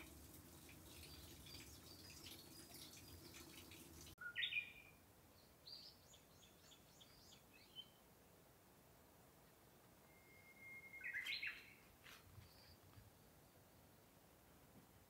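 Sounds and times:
birds chirping: 0.5s - 8.0s, 10.1s - 13.6s.

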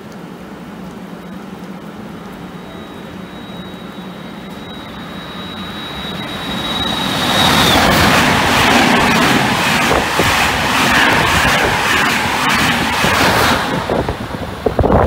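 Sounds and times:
rush of train coaches passing: 1.3s - 15.0s
thin high whine: 2.3s - 14.0s.

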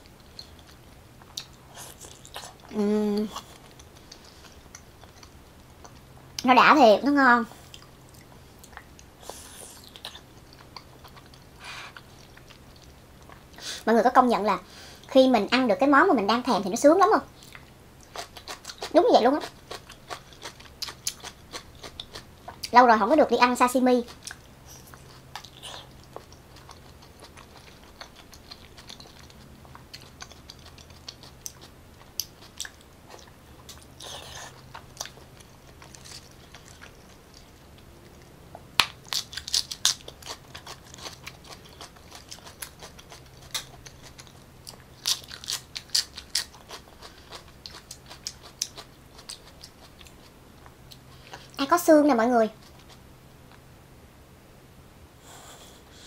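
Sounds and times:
wet chewing and smacking: 0.0s - 6.4s, 7.6s - 13.6s, 17.4s - 22.7s, 24.0s - 51.6s
crisp biting: 38.8s - 49.6s.

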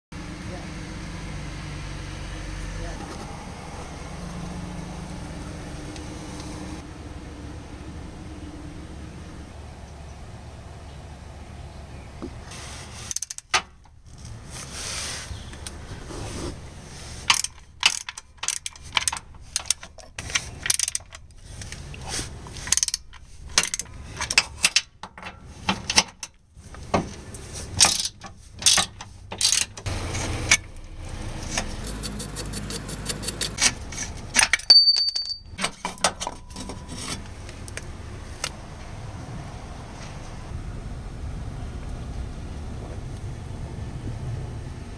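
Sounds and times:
metal clicks and clanks: 17.3s - 21.8s, 22.6s - 26.4s, 27.8s - 30.7s
ratchet clicking: 31.8s - 33.6s
high metallic ring: 34.7s - 35.6s.

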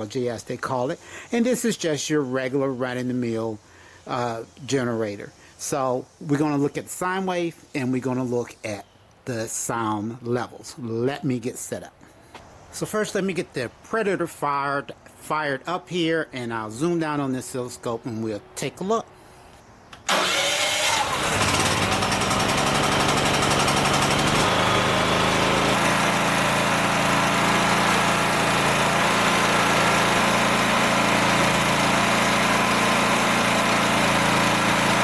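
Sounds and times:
generator engine starting and running: 19.1s - 35.0s.

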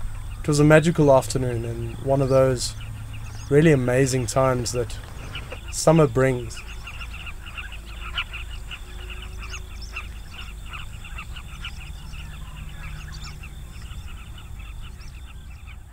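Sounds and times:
chorus of birds calling: 0.0s - 15.9s.

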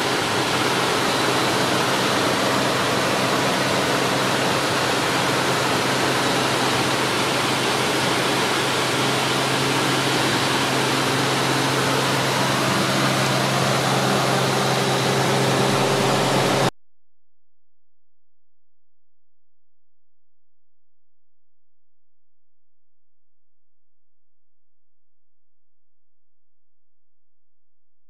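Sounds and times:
propeller plane engine drone: 0.0s - 16.7s.

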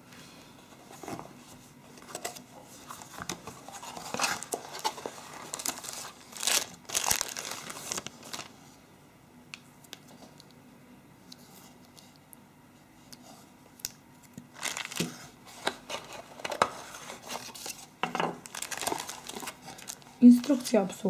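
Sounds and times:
plastic wrapping crinkling and tearing: 2.9s - 8.6s, 13.8s - 20.8s.

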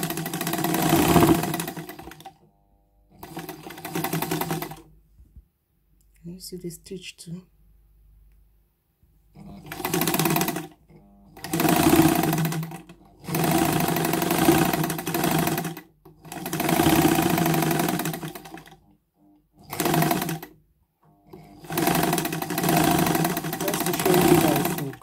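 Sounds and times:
sewing machine stitching fabric: 0.0s - 2.5s, 3.1s - 4.9s, 9.3s - 25.0s.

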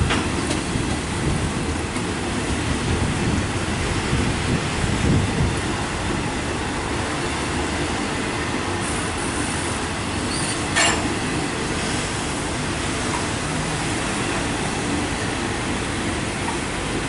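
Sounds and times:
train wheels on rail: 0.0s - 17.0s
sharp metallic clank: 10.7s - 11.1s.

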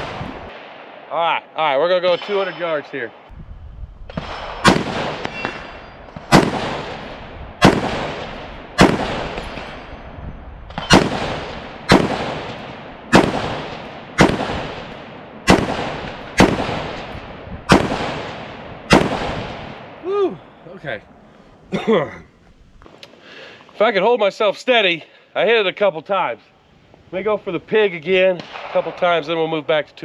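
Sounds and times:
rifle shots with echo: 4.1s - 9.9s, 10.7s - 20.0s, 28.4s - 29.5s.

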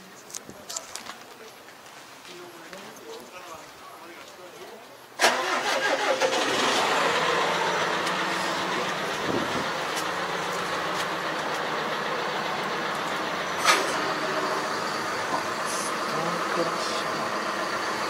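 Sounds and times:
tractor diesel engine running: 5.2s - 18.0s.

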